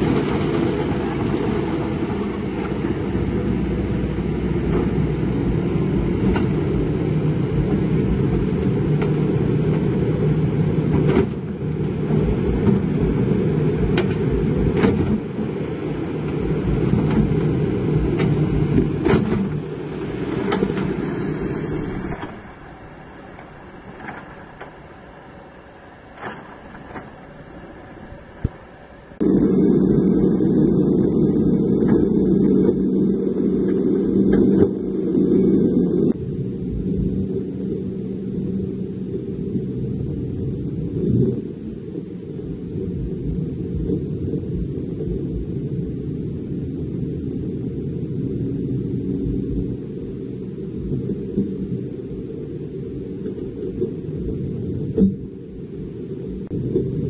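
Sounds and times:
excavator diesel engine running: 0.0s - 33.1s.

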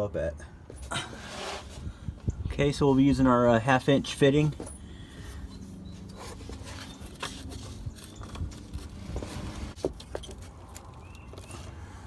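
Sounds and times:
light scraping and rustling: 0.7s - 1.9s, 4.4s - 11.8s.

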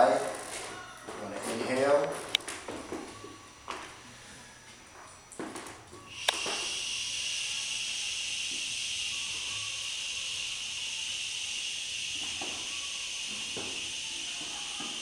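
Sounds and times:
man breathing out a long hiss: 6.1s - 14.8s.

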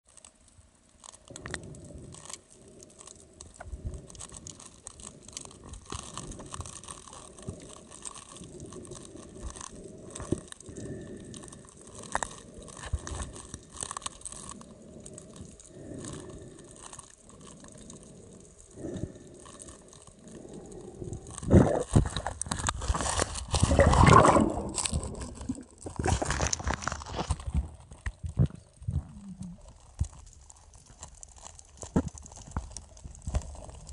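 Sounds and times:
clicks and crackles: 0.1s - 33.9s
underwater water movement rumble: 1.2s - 33.9s
water sloshing: 23.1s - 26.8s.

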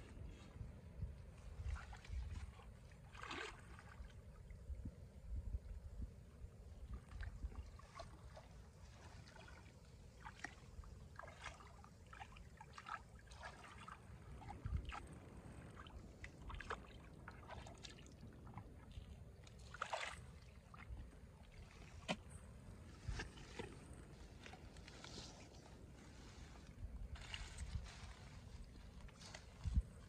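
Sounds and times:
hands splashing in muddy water: 1.6s - 4.1s.

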